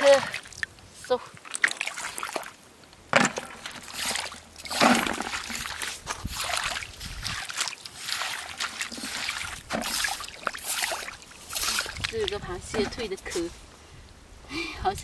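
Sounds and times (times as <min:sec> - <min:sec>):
rubber boots sloshing through water: 0:00.0 - 0:13.5.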